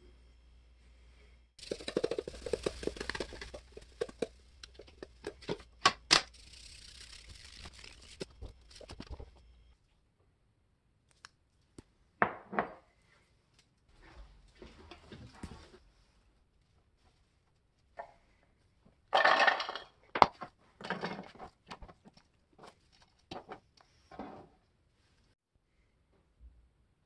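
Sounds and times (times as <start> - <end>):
salt grains falling on meat: 1.6 - 4.8.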